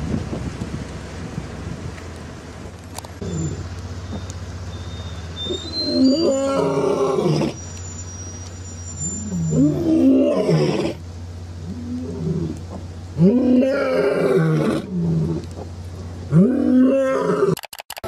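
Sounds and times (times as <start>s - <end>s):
lion roaring: 5.8s - 7.6s, 9.3s - 11.0s, 11.6s - 15.5s, 16.3s - 17.6s
lion low moan: 11.6s - 15.6s.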